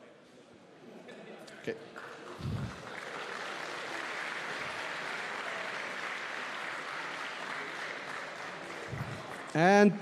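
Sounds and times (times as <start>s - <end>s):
audience applauding: 2.0s - 9.9s.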